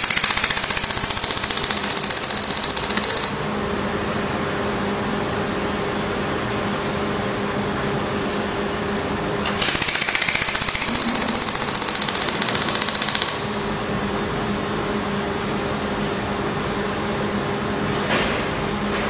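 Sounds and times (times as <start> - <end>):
laser welder snapping pulses: 0.0 - 3.6, 9.4 - 13.7
low machine hum: 0.0 - 19.0.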